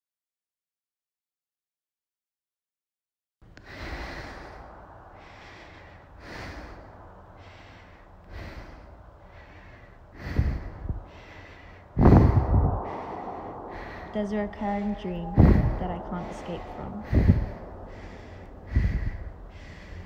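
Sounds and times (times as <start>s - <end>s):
woman breathing heavily: 3.6s - 20.0s
air blasts on microphone: 12.0s - 19.4s.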